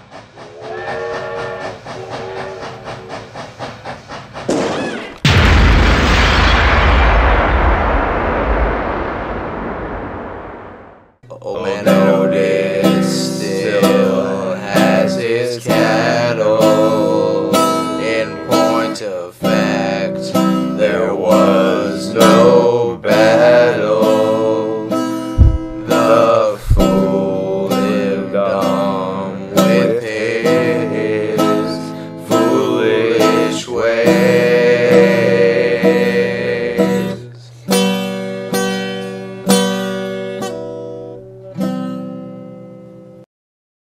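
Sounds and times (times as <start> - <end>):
strummed acoustic guitar song: 11.6 - 43.2.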